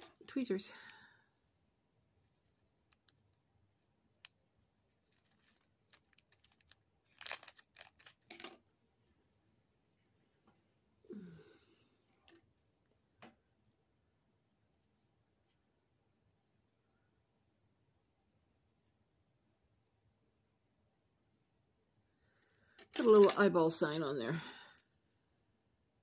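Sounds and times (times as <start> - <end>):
plastic bag crinkling: 5.0 - 8.6, 22.8 - 23.6.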